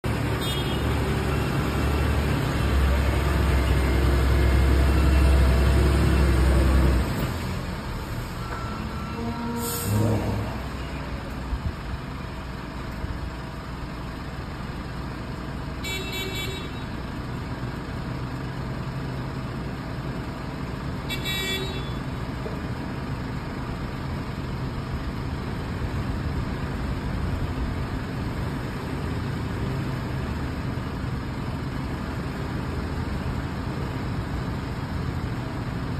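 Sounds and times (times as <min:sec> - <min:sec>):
diesel truck engine rumbling: 0:00.0 - 0:35.9
truck horn toots: 0:00.3 - 0:01.0, 0:08.4 - 0:11.3, 0:15.8 - 0:17.0, 0:21.1 - 0:22.0.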